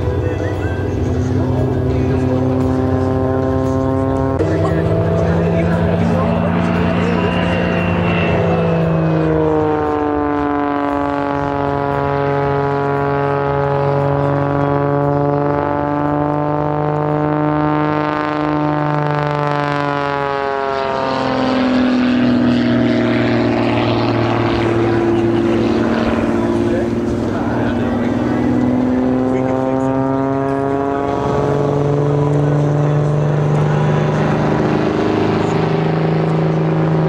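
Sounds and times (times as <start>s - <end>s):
propeller airplane engine: 0.0s - 37.0s.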